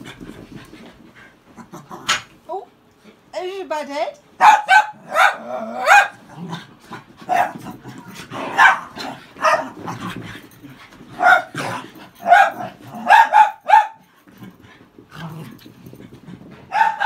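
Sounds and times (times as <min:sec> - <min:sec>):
dogs barking: 0:04.4 - 0:06.2, 0:08.4 - 0:09.8, 0:11.2 - 0:11.6, 0:12.2 - 0:14.0, 0:16.7 - 0:17.0.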